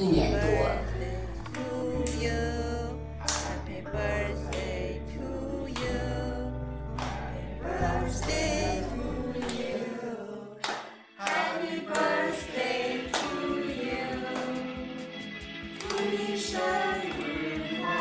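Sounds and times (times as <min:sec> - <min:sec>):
group singing with music: 0:00.0 - 0:18.0
hand claps: 0:03.2 - 0:03.6, 0:05.7 - 0:06.0, 0:06.9 - 0:07.4, 0:08.2 - 0:08.6, 0:09.4 - 0:09.8, 0:10.6 - 0:14.8, 0:15.4 - 0:18.0.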